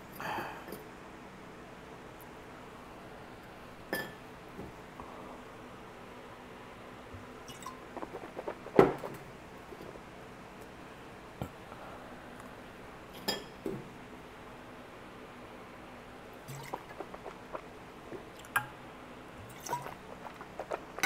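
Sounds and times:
gulping and swallowing: 7.5 - 9.9, 16.5 - 18.6, 19.4 - 21.0.

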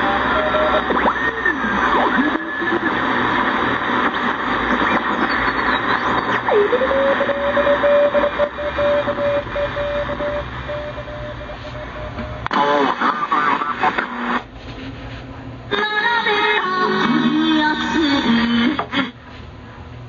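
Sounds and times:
swooping radio whistle: 0.0 - 14.4
radio station audio: 0.0 - 14.5, 16.3 - 19.2
shortwave radio static and hiss: 0.0 - 19.2.

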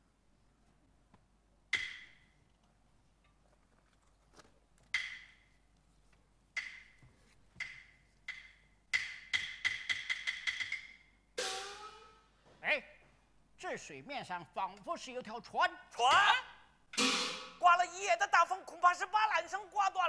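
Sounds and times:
sharp wood-like percussion strikes: 1.7 - 2.2, 5.0 - 5.3, 6.6 - 7.0, 7.6 - 12.2, 17.0 - 17.6.

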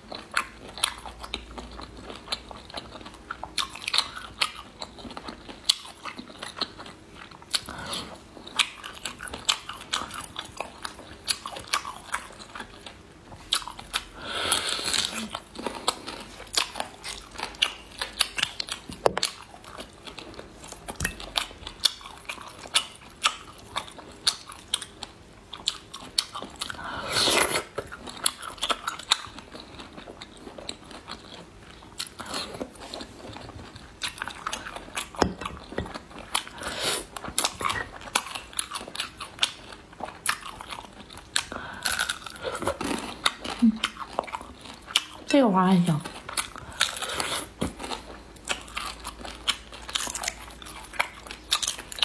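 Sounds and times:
wet chewing: 0.0 - 52.0.

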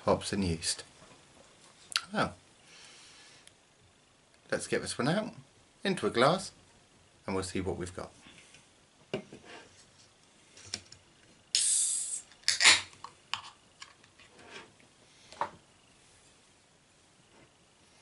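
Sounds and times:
can tab opening burst: 11.5 - 13.5
gas hissing from can: 11.6 - 12.8.

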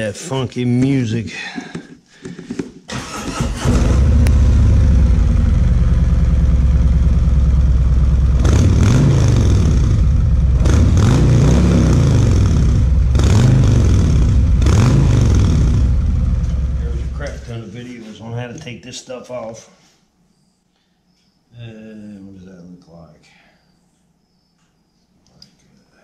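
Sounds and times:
motorcycle engine revving: 2.9 - 17.4.

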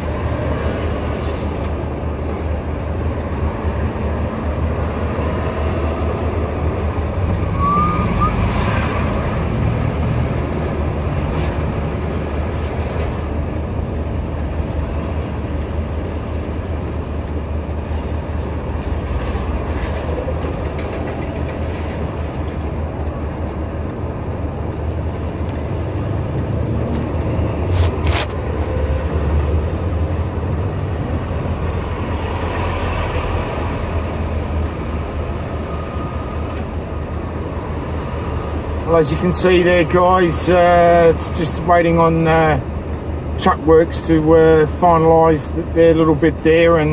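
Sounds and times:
diesel engines rumbling: 0.0 - 46.9.

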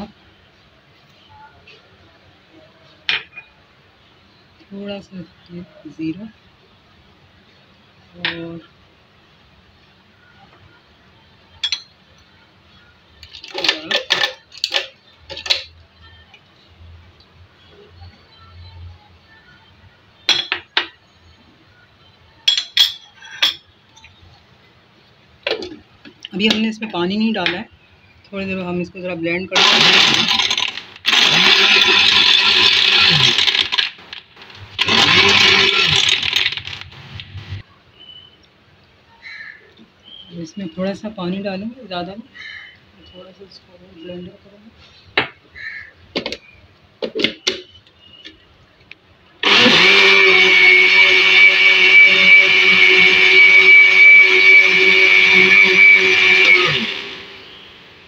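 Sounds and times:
ice cubes clattering in blender jar: 29.6 - 36.9
blender motor whining: 29.6 - 37.6, 49.4 - 57.8.

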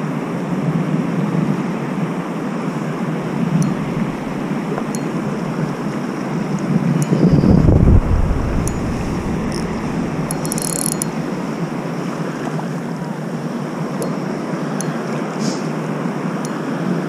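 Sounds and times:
wind on microphone: 2.8 - 12.6
fishing reel winding and clicking: 8.1 - 11.2.

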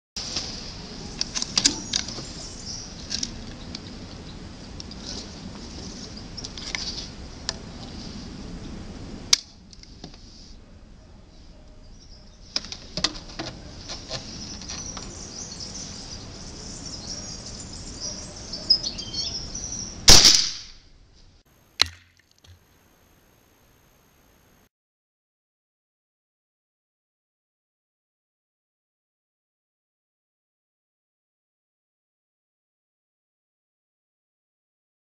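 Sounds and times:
faint bird chirping: 0.8 - 4.4, 11.0 - 12.8, 13.5 - 20.0
air rifle shot: 20.1 - 20.8.

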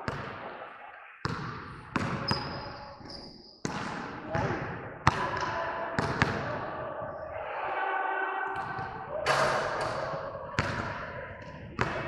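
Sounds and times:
faint voices: 4.2 - 12.0.

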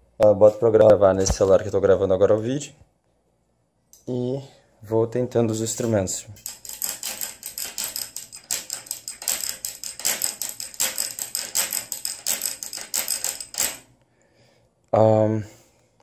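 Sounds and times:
metal rod tapping bicycle chain: 6.4 - 13.9.

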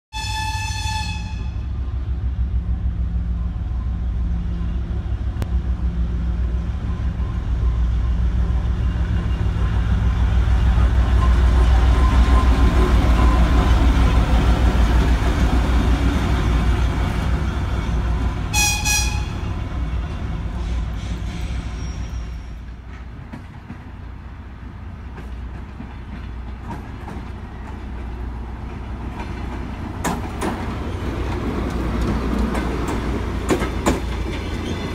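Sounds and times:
short train horn toot: 0.1 - 1.8, 18.5 - 19.6
diesel locomotive engine rumble: 0.2 - 34.9.

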